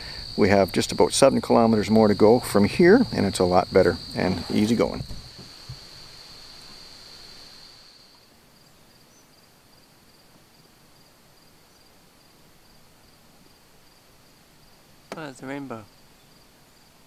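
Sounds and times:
insect trilling: 0.0 - 10.2.

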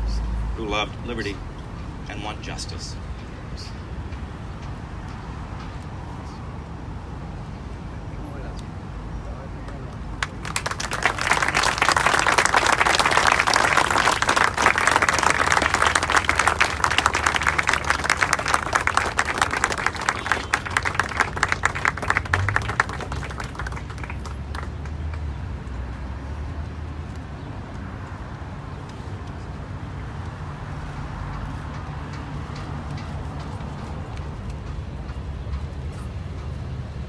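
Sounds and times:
low traffic rumble: 0.0 - 37.0
audience applauding: 10.2 - 25.3.

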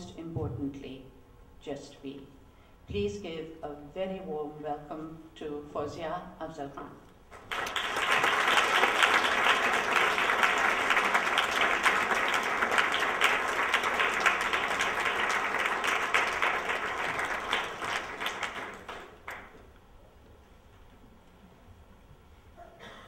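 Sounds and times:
audience applauding: 7.4 - 19.6.

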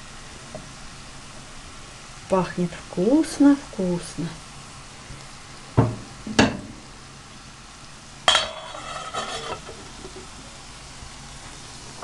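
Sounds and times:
onion sizzling in oil: 0.0 - 12.0
metal lid clanking onto pot: 8.3 - 10.3.

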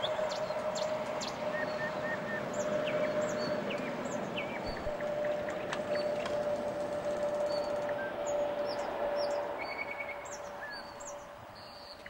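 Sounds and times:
small birds chirping: 0.0 - 6.4
constant background rush: 0.0 - 12.0.

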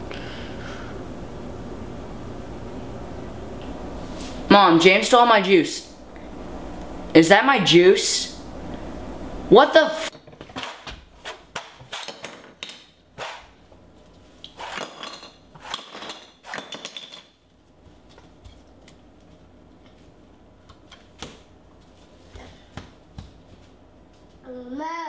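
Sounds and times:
plastic toys knocking on floor: 10.2 - 12.9, 14.8 - 17.4.

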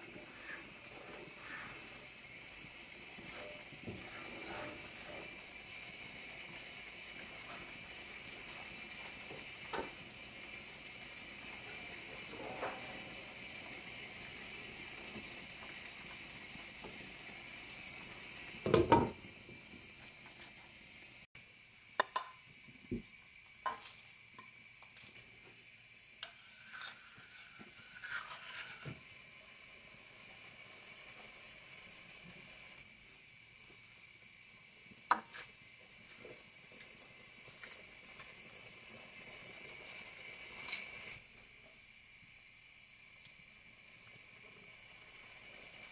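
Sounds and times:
wooden spatula scraping: 0.0 - 5.5, 26.3 - 29.0
food sizzling in a pan: 0.0 - 45.9.

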